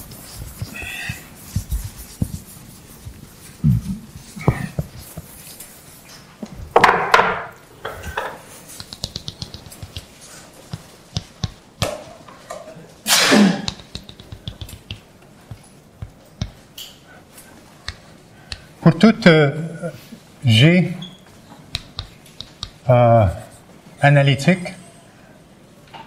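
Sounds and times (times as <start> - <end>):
chalk scraping loudly: 0.0 - 3.6
chalk tapping and scratching: 0.0 - 6.0, 7.9 - 12.1, 13.6 - 16.8, 17.8 - 18.7, 21.6 - 23.7.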